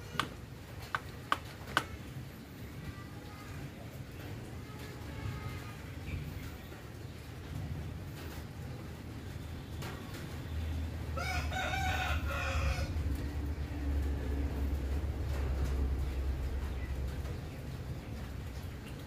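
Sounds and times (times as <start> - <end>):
low steady rumble: 10.6 - 19.0
rooster crowing: 11.2 - 13.0.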